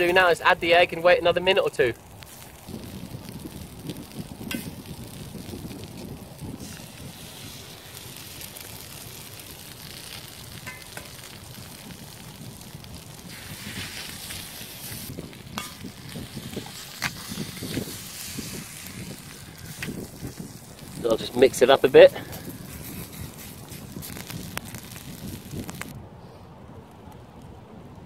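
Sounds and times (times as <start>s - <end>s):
eggs sizzling in a skillet: 2.2s - 25.9s
eggs cracking: 22.3s - 25.9s.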